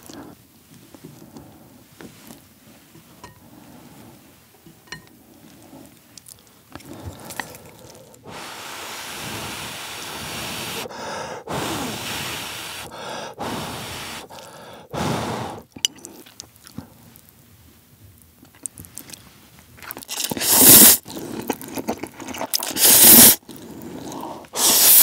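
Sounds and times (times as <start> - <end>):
chewing: 4.9 - 8.3, 15.7 - 17.4, 18.4 - 24.6
person blowing on hot food: 8.3 - 15.8, 20.1 - 21.2, 22.6 - 25.0.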